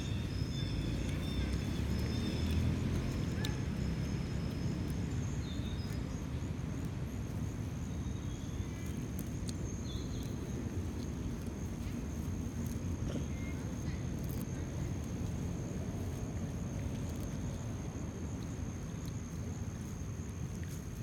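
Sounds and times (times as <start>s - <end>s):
high insect drone: 0.0s - 5.9s
low steady rumble: 0.0s - 21.0s.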